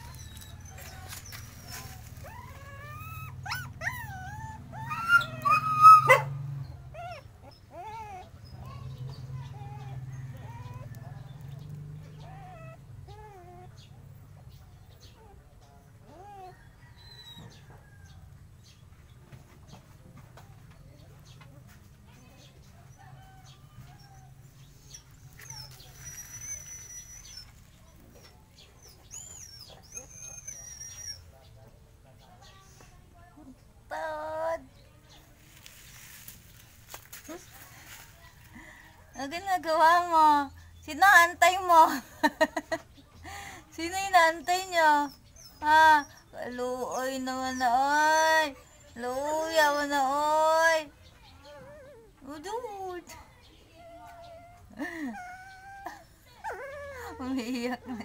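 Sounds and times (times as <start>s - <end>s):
puppy whining and whimpering: 0.0s - 6.2s, 6.9s - 13.9s, 16.0s - 17.7s, 23.4s - 31.4s, 44.1s - 52.4s, 53.7s - 58.0s
puppy yelp: 0.0s - 11.1s, 23.9s - 31.3s.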